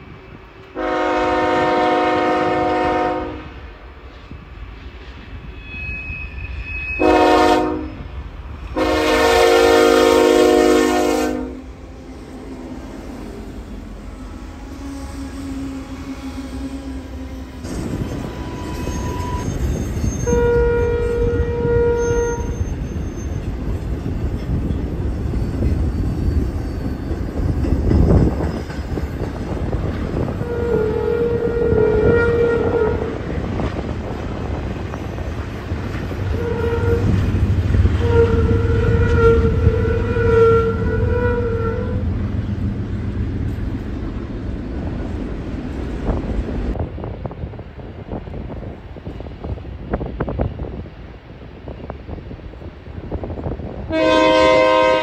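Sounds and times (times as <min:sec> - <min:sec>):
freight train rumbling past: 0:00.0 - 0:55.0
locomotive air horn blasts: 0:00.8 - 0:03.6, 0:07.0 - 0:08.1, 0:08.8 - 0:11.8, 0:20.2 - 0:22.6, 0:30.4 - 0:33.1, 0:36.3 - 0:42.2, 0:53.9 - 0:55.0.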